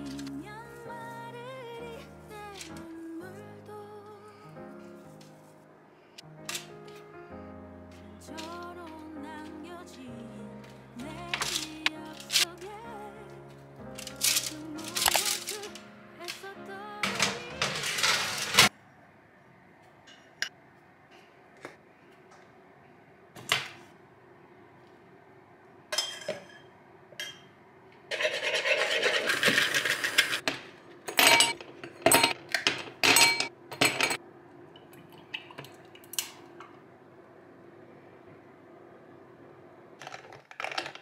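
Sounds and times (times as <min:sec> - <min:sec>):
kitchenware clattering: 0:17.0 - 0:18.7, 0:26.0 - 0:27.5, 0:28.1 - 0:34.2, 0:40.0 - 0:41.0
dishes clinking: 0:20.1 - 0:20.6, 0:25.9 - 0:27.5, 0:28.1 - 0:34.2.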